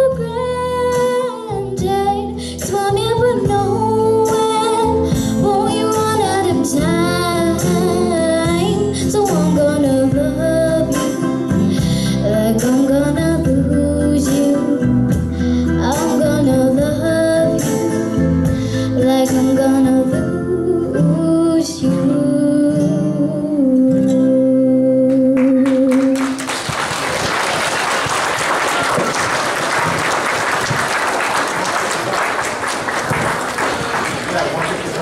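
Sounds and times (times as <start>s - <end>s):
girl singing: 0.0s - 11.4s, 12.2s - 14.8s, 15.7s - 26.4s
recorded backing track: 0.0s - 26.8s
audience applauding: 25.4s - 35.0s.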